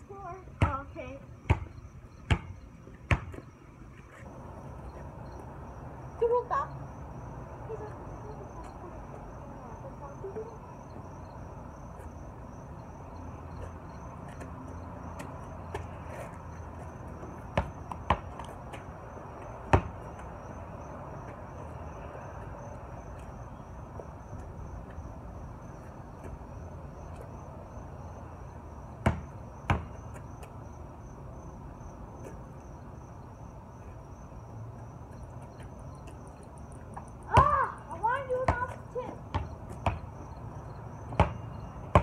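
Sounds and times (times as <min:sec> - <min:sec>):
basketball thudding: 0:01.5 - 0:03.4, 0:17.6 - 0:18.5, 0:19.7 - 0:20.0, 0:29.0 - 0:30.0, 0:39.3 - 0:40.1, 0:41.1 - 0:42.0.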